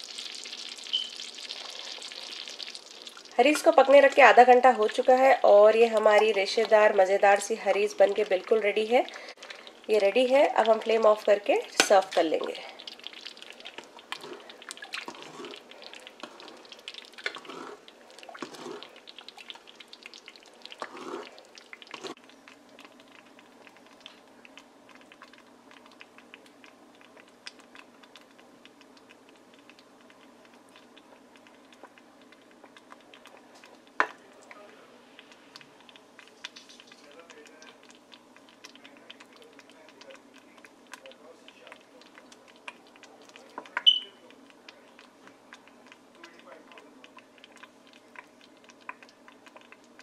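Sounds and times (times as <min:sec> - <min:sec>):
faint steady hum: 0:00.0 - 0:50.0
ladle scraping metal pot: 0:14.1 - 0:18.9, 0:21.9 - 0:22.2.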